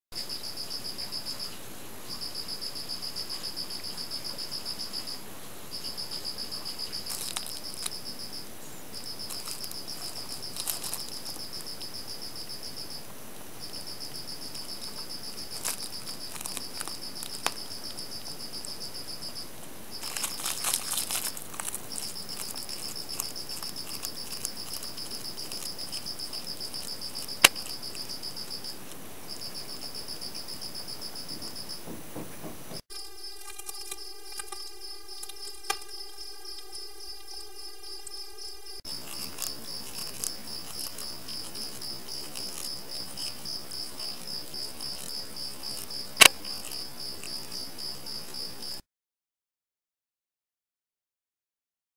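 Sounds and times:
cricket trilling: 0.2s - 48.8s
plastic bag crinkling: 6.3s - 8.1s, 9.0s - 11.8s, 14.5s - 18.4s, 19.9s - 29.0s, 33.1s - 36.2s, 38.9s - 47.6s.

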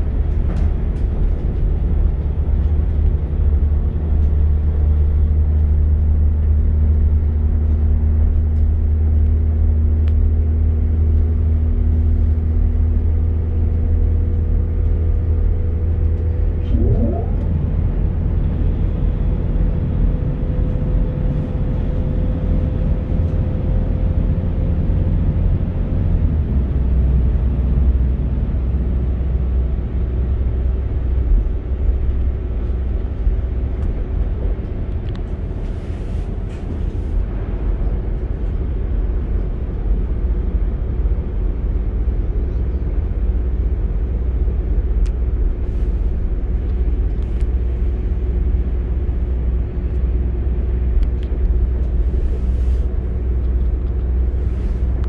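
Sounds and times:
engine and transmission hum: 0.0s - 55.0s
train interior rumble: 0.0s - 55.0s
rising tone: 16.6s - 18.8s.

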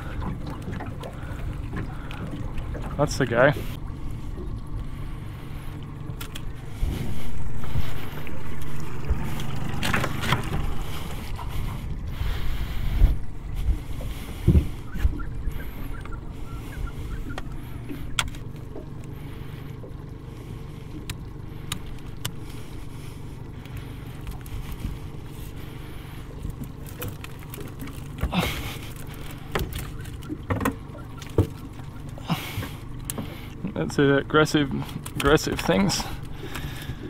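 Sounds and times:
steady low rumble: 0.0s - 37.0s.

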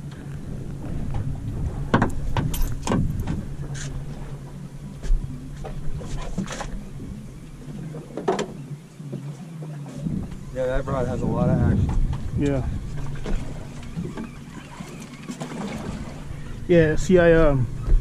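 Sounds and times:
boat engine idling: 0.0s - 18.0s
fishing gear knocks and clatters: 1.9s - 3.4s.

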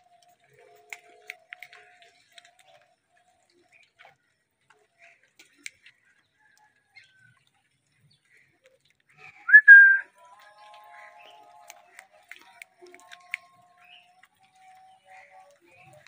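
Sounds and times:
parakeet whistled call: 9.5s - 10.0s.

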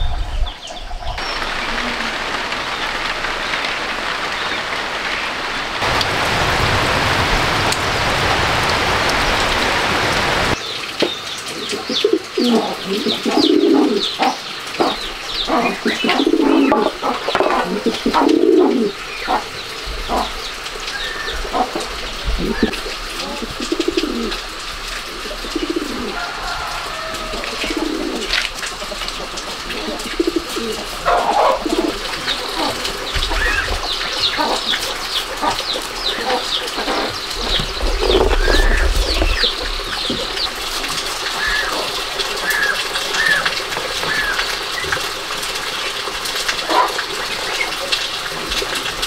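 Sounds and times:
steady hiss: 1.2s - 49.0s
dove cooing: 11.6s - 20.4s, 21.2s - 34.7s, 35.4s - 44.6s.

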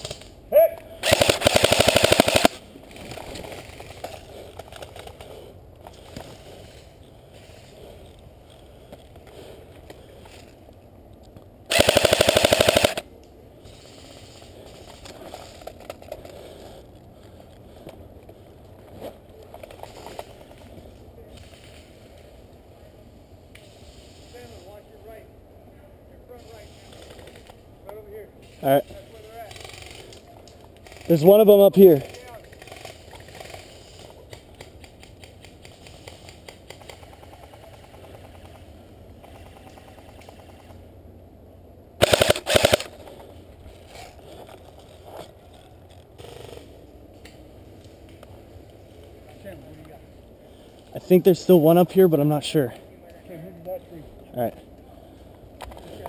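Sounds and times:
airsoft rifle full-auto burst: 1.0s - 2.6s, 11.7s - 13.0s, 42.0s - 42.9s.

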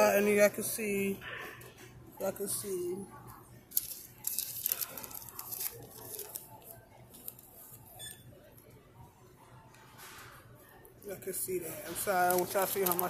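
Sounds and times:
paper crinkling and rustling: 3.7s - 8.0s, 11.7s - 13.0s.

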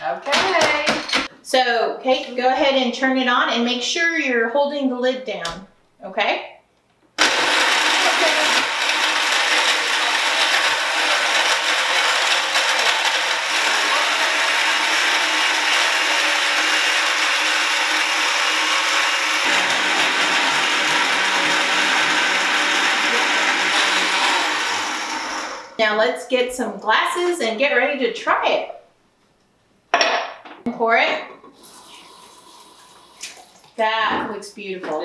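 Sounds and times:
blender blending ice: 7.2s - 25.8s, 31.5s - 33.5s.

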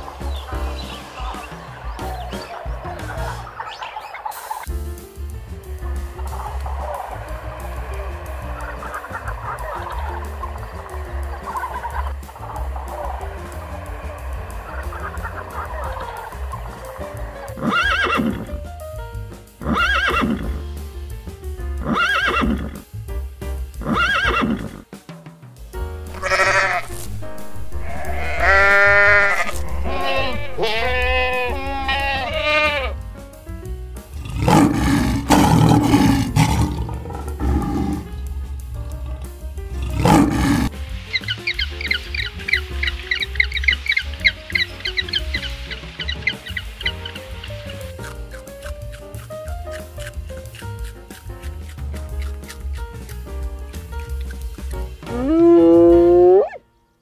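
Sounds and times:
background music: 0.0s - 57.0s
animal calls: 6.3s - 18.5s, 26.1s - 32.9s, 34.2s - 38.2s, 39.8s - 51.0s, 55.0s - 56.6s.

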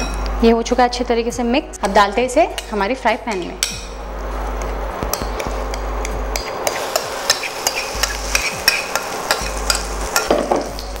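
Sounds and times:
omelette sizzling in oil: 4.0s - 11.0s
utensil scraping pan: 6.3s - 10.7s.

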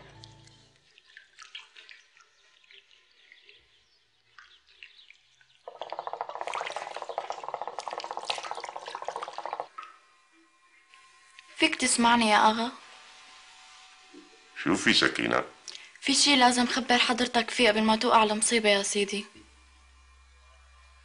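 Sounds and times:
hookah water bubbling: 0.2s - 10.0s.

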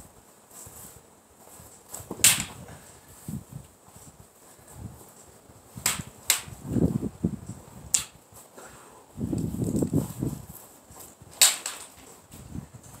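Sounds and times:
wind rumble on microphone: 2.0s - 8.3s, 9.1s - 11.4s, 12.2s - 13.0s
sparring weapons clacking: 11.4s - 12.1s.

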